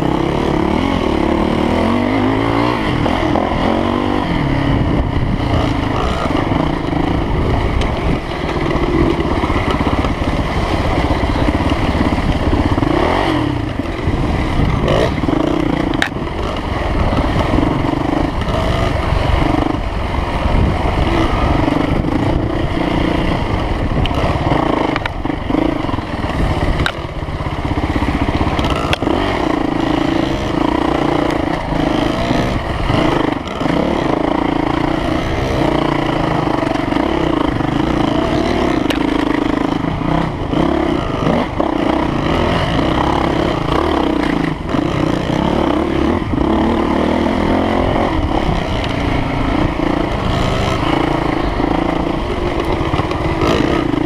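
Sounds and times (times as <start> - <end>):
dirt bike engine: 0.0 - 54.0
knocks and clatter from bike: 7.7 - 19.7, 36.6 - 45.4.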